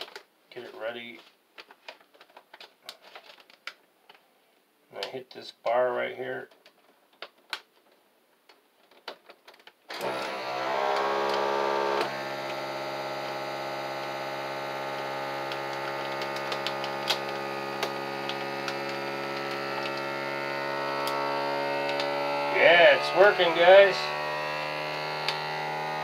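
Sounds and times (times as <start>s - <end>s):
vacuum sealer pump humming: 9.9s - 26.0s
machine vibrating on metal sheet: 10.0s - 26.0s.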